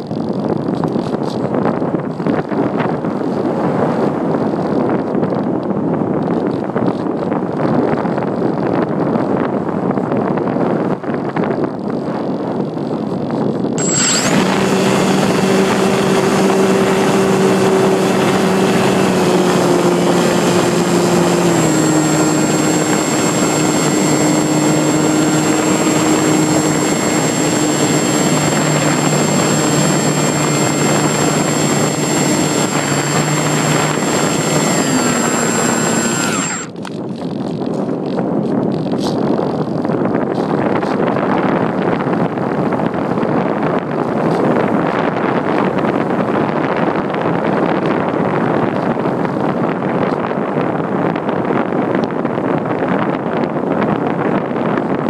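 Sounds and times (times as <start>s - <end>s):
wind rushing over microphone: 0.0s - 55.0s
electric motor and propeller whine: 13.8s - 37.1s.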